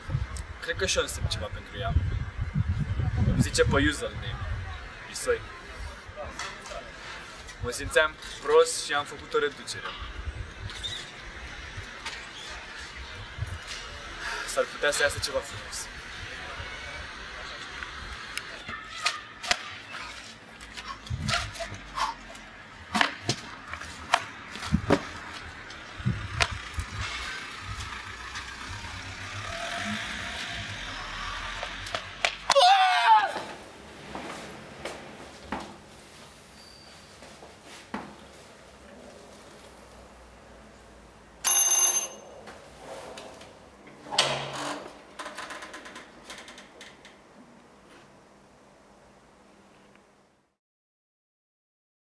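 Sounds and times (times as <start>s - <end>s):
electric doorbell ringing: 41.4s - 42.4s.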